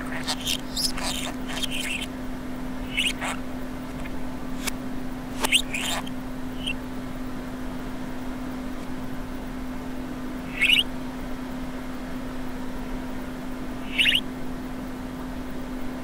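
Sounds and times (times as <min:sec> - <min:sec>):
budgerigar chattering played backwards: 0:00.0 - 0:02.1, 0:02.8 - 0:04.7, 0:05.4 - 0:06.8, 0:10.5 - 0:10.9, 0:13.8 - 0:14.2
steady low hum: 0:00.0 - 0:16.0
sharp click: 0:05.4 - 0:06.8.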